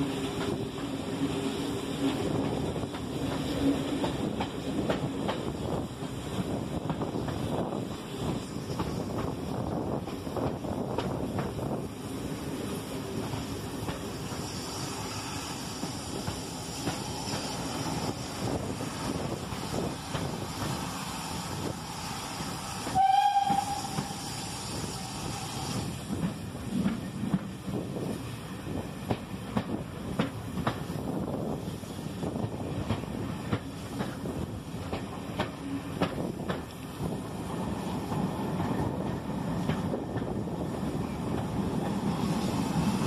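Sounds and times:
train rumble: 0:00.0 - 0:43.0
steam whistle: 0:22.8 - 0:25.3.

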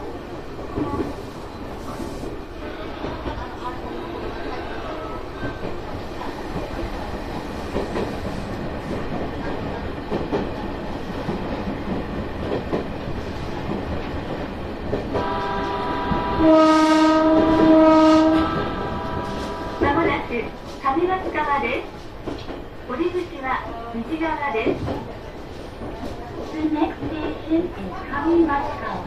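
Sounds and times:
electric train running on track: 0:00.0 - 0:29.0
train horn: 0:15.2 - 0:20.1.

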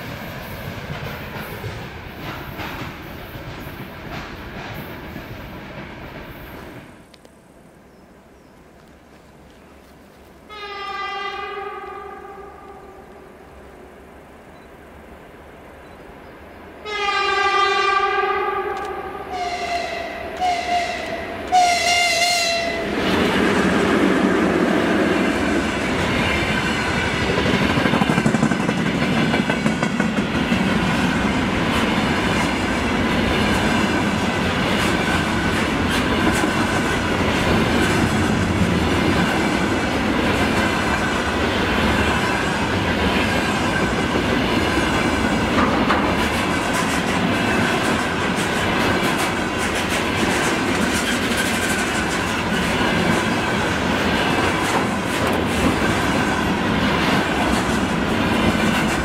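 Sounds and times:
train wheels rumbling and clicking: 0:00.0 - 0:07.4, 0:20.3 - 0:59.0
locomotive horn blasts: 0:10.5 - 0:13.0, 0:16.8 - 0:23.0.

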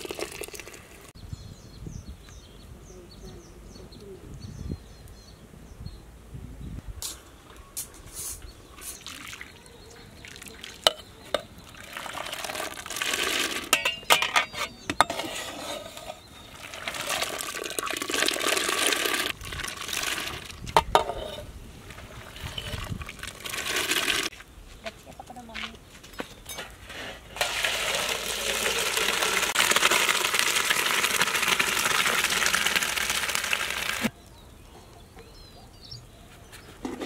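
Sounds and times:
water sloshing in a pot: 0:08.9 - 0:09.6, 0:10.2 - 0:14.5, 0:16.0 - 0:24.3, 0:27.4 - 0:34.1
metal skimmer clinking on pot: 0:13.7 - 0:15.2.

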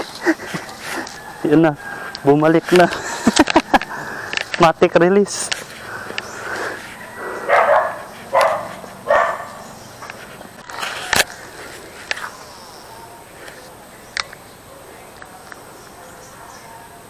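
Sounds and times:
dog barking: 0:07.4 - 0:09.6.

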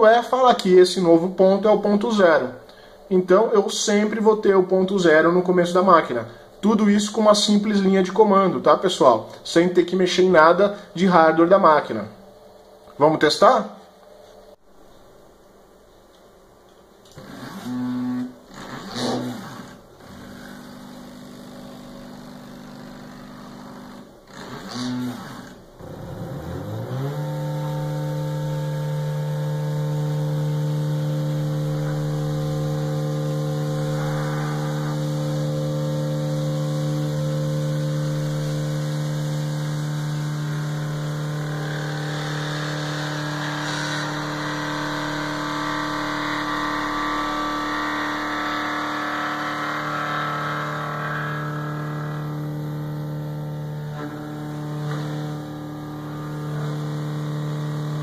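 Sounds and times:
stepper motors whining: 0:23.1 - 0:58.0.

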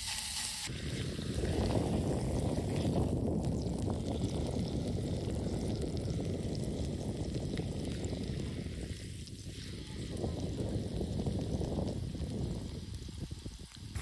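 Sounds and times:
steak searing on griddle: 0:00.0 - 0:00.7
wind buffeting microphone: 0:00.7 - 0:14.0.

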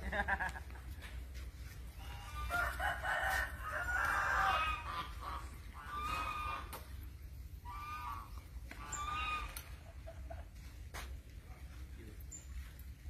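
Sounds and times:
bird calling: 0:04.4 - 0:10.2.

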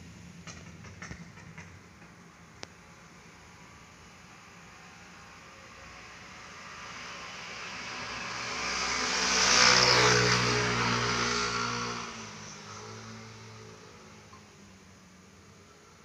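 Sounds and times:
vehicle passing by: 0:04.6 - 0:14.4.

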